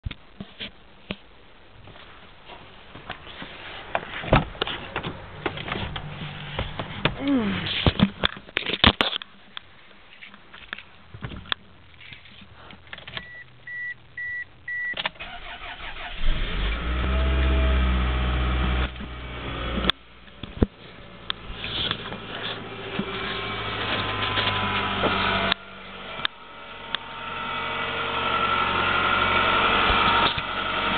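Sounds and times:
car engine starting and idling: 0:12.9 - 0:30.9.

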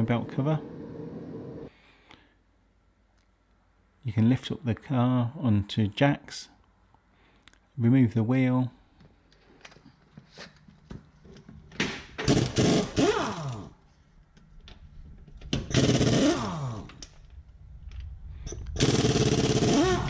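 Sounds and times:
pneumatic impact wrench hammering: 0:12.2 - 0:13.7, 0:15.6 - 0:17.0, 0:18.8 - 0:20.0.

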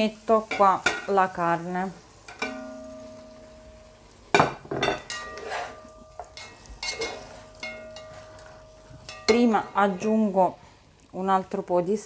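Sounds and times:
spatula knocking and scraping pot: 0:02.3 - 0:03.7, 0:04.3 - 0:10.3
metal pot ringing: 0:02.3 - 0:10.3
food sizzling faintly: 0:05.0 - 0:12.0.

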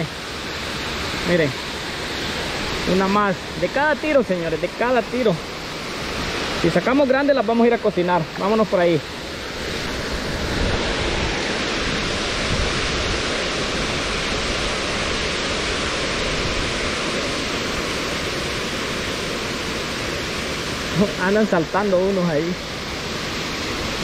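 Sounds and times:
steady rushing noise: 0:00.0 - 0:24.0.

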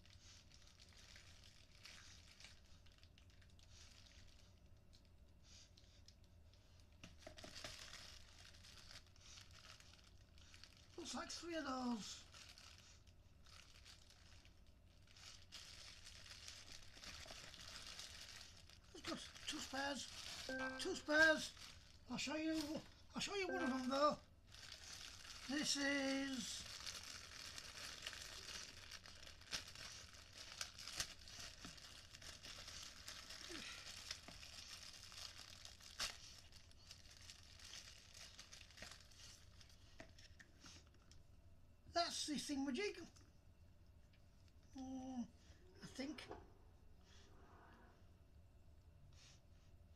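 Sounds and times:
plastic bag crinkling: 0:00.0 - 0:05.0, 0:06.8 - 0:41.2
packaging rustling: 0:07.0 - 0:11.0, 0:12.2 - 0:41.1.

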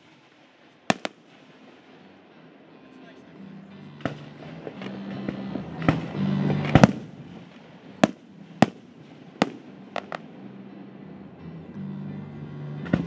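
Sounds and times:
fireworks bangs: 0:00.0 - 0:02.2, 0:04.0 - 0:10.3
fireworks crackle: 0:00.0 - 0:02.2, 0:05.9 - 0:10.3.

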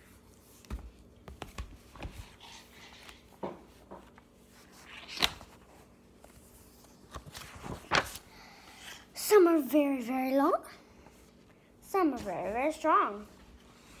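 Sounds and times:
book rustles and knocks: 0:00.6 - 0:02.3, 0:03.0 - 0:04.3.

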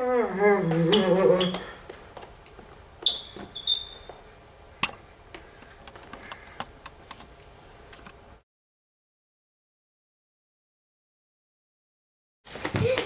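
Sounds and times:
short high squeaks: 0:03.0 - 0:04.2.

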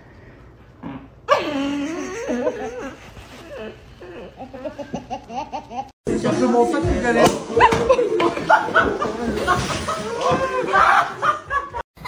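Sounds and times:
toddler crying and laughing: 0:01.3 - 0:05.9.

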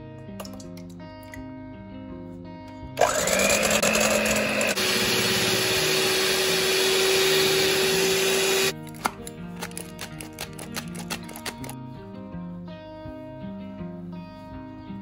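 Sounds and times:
background music: 0:00.0 - 0:15.0
electric hand mixer whining: 0:03.0 - 0:08.7.

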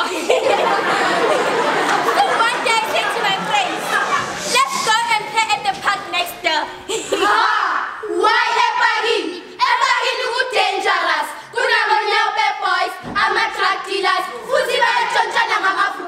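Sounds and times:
girls singing together: 0:07.0 - 0:16.0.

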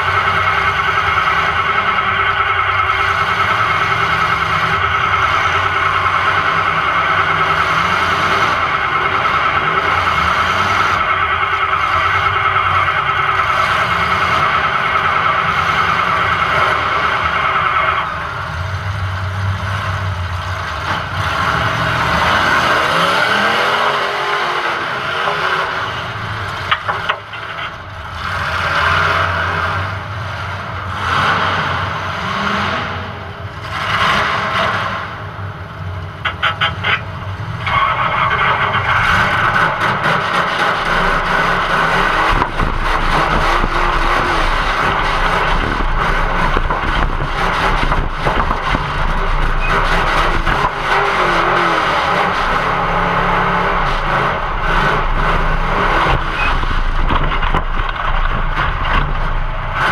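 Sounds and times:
high-pitched squeal: 0:00.0 - 0:20.0, 0:36.2 - 0:59.9
car engine revving: 0:00.0 - 0:59.9.

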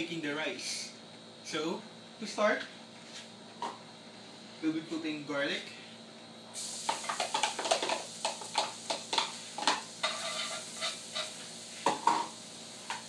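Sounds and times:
garlic sizzling in a wok: 0:06.5 - 0:13.0
spatula scraping and tapping: 0:08.6 - 0:11.3.

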